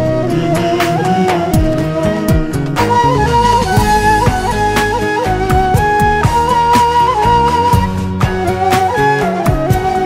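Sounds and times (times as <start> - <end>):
flowing melody line: 0.0 - 10.0
percussion hits: 1.3 - 7.0
deep drum hits: 1.6 - 6.6.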